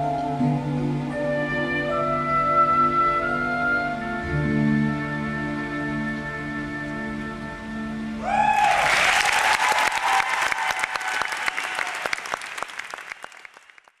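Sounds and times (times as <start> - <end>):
music held chord: 0.0 - 8.2
audience cheer: 8.2 - 13.8
audience applause: 8.3 - 14.0.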